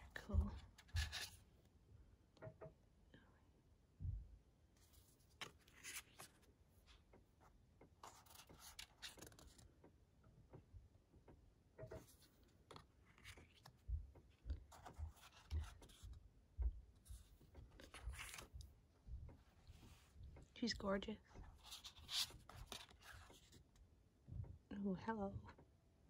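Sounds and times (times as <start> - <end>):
soft low thumps: 0.1 - 1.1, 13.8 - 17.4
card pages sliding and rubbing: 0.8 - 1.5, 4.8 - 6.5, 8.0 - 9.6, 11.9 - 13.8, 14.5 - 16.2, 17.0 - 18.6, 21.4 - 23.6.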